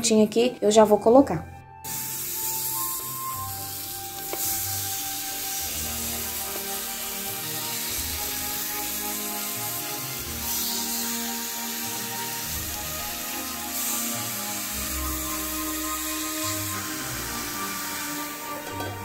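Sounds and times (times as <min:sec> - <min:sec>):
background music: 0:00.0 - 0:19.0
meat sizzling in a frying pan: 0:01.9 - 0:18.9.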